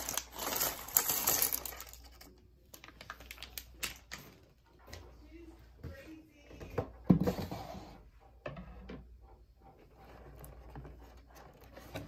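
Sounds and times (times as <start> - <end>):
plastic bag crinkling: 0.0 - 4.2.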